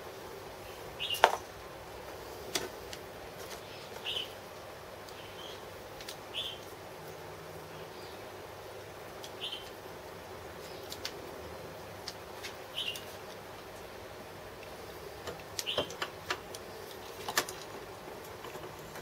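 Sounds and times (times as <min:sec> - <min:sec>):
small bird chirping: 0:00.6 - 0:01.3, 0:03.6 - 0:04.4, 0:05.1 - 0:05.7, 0:06.3 - 0:06.7, 0:09.2 - 0:09.8, 0:12.7 - 0:13.2.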